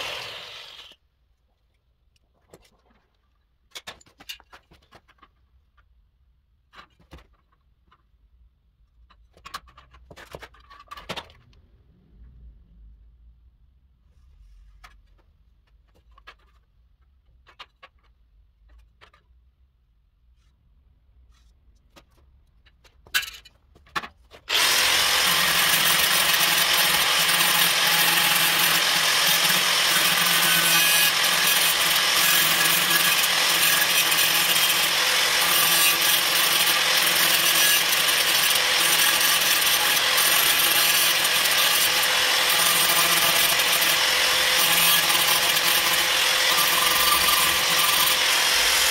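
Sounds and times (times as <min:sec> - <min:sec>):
angle grinder cutting steel: 0:00.0 - 0:01.0, 0:24.5 - 0:48.9.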